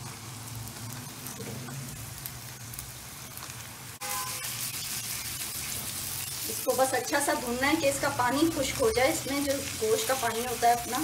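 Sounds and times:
meat sizzling in hot oil: 0.0s - 11.0s
spatula stirring in pan: 4.0s - 11.0s.

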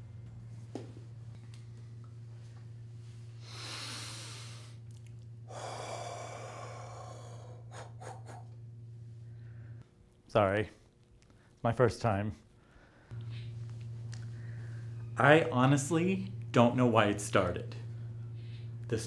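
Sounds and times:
low hum: 0.0s - 11.6s, 12.6s - 19.0s
man breathing heavily: 3.3s - 4.8s, 5.4s - 9.8s.

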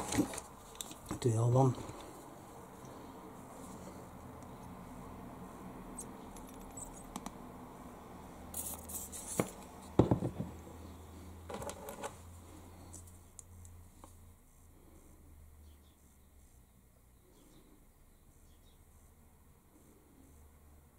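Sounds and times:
light clicks taps and scrapes: 0.0s - 2.2s, 6.0s - 7.4s.

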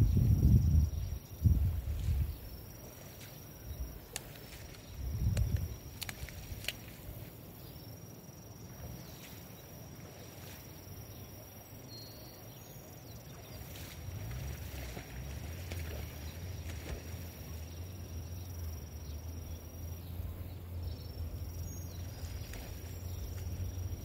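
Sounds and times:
wind rumble on microphone: 0.0s - 7.3s, 13.3s - 18.6s.

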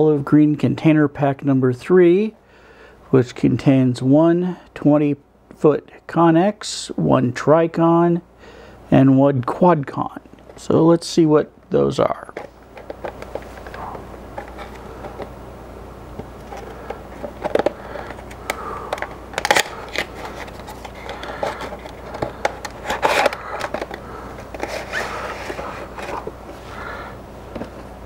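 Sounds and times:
plastic package crackling: 16.5s - 26.3s
plastic snaps: 16.6s - 24.0s.

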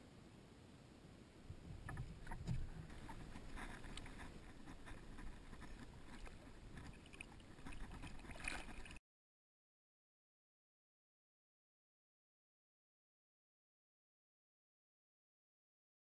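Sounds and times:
wind rumble on microphone: 1.4s - 9.0s
small water splashes: 1.8s - 9.0s.

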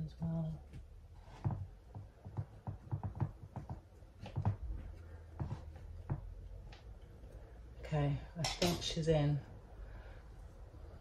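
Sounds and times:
hands pressing potting mix: 0.6s - 7.6s.

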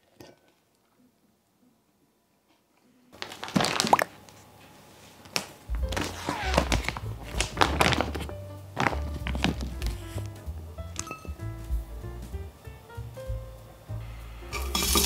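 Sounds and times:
plastic bag rustling and crinkling: 3.2s - 4.3s, 5.7s - 10.3s
background music with bass: 5.7s - 15.0s.

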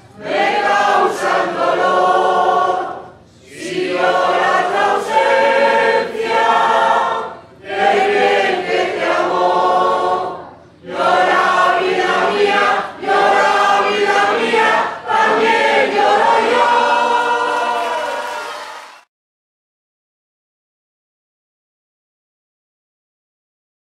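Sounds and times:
choir singing: 0.0s - 19.1s.

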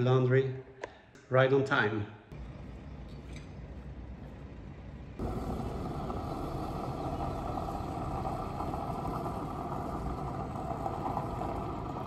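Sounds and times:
van engine driving away: 3.9s - 12.0s.

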